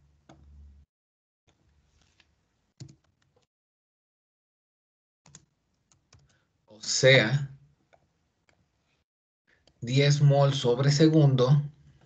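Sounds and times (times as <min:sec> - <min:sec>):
keyboard typing: 0:05.3 - 0:06.3.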